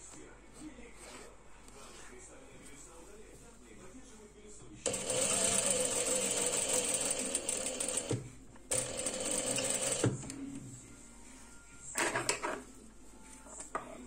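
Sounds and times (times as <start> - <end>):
sewing machine stitching: 4.9 - 10.3.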